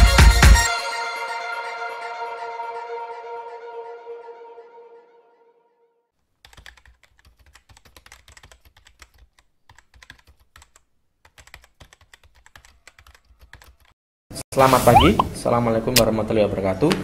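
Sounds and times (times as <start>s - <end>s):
keyboard typing clicks: 6.5s - 13.9s.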